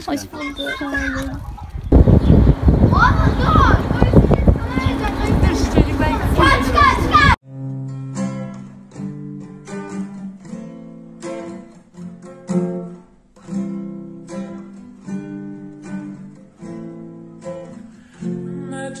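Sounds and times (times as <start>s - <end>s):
acoustic guitar strumming chords: 7.4s - 19.0s.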